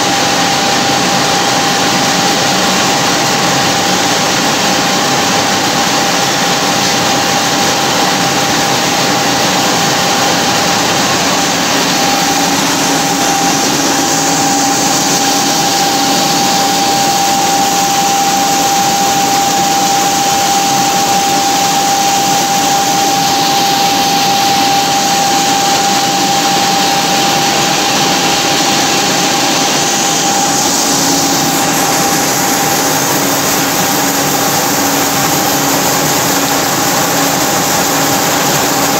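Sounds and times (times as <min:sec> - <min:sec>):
high machine whine: 0:00.0 - 0:38.9
lathe cutting metal: 0:00.0 - 0:38.9.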